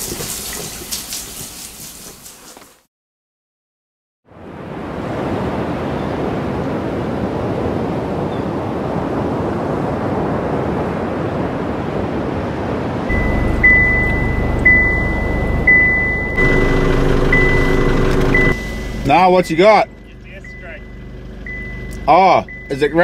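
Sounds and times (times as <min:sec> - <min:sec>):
low rumble: 0:13.1 - 0:22.7
deep droning tone: 0:13.1 - 0:23.0
high electronic beep pulsing: 0:13.1 - 0:23.0.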